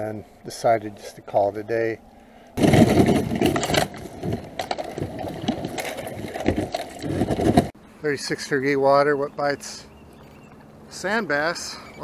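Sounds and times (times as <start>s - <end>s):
ice cracking: 2.6s - 7.7s
kayak crunching through ice: 2.6s - 7.8s.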